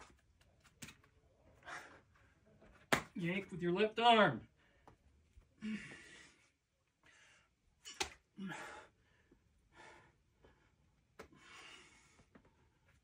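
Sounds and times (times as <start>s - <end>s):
person breathing and huffing: 5.6s - 7.6s.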